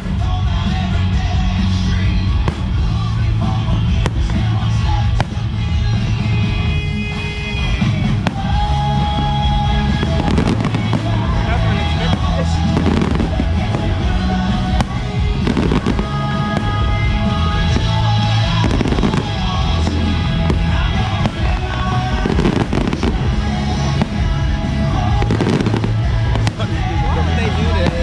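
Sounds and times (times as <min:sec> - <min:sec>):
fireworks bangs and crackles: 0:00.0 - 0:28.0
loud music: 0:00.0 - 0:28.0.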